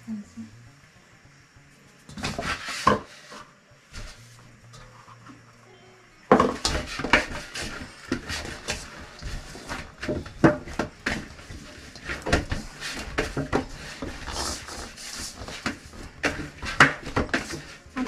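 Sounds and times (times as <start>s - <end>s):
dough thumping in metal bowl: 6.3s - 18.0s.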